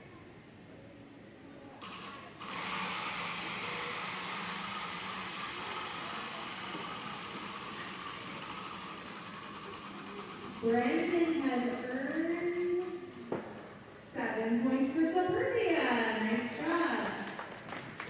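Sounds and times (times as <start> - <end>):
prize wheel whirring: 1.8 - 13.8.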